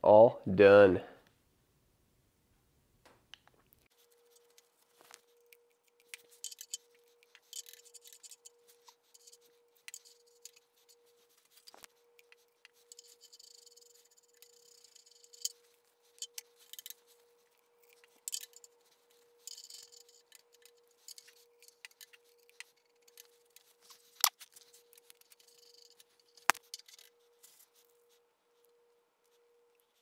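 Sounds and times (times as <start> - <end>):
light clicks and rubbing: 3.4 - 28.2
faint steady tone: 3.7 - 30.0.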